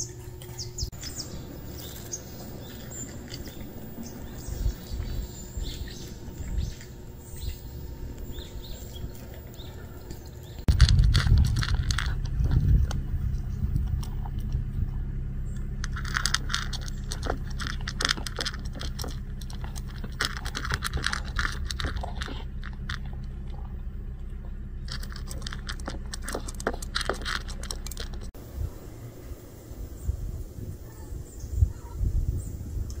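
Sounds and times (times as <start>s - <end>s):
steady low rumble: 0.0s - 33.0s
cat chewing and clicking: 9.0s - 14.7s, 15.6s - 28.4s.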